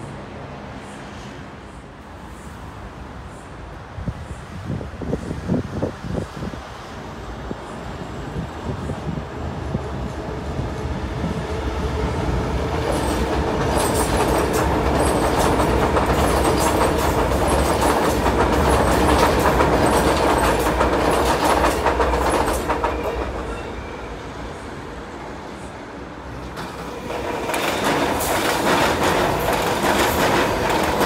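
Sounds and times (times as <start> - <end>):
electric train passing: 0.0 - 31.0
wheels clicking over rail joints: 12.7 - 23.6, 26.4 - 31.0.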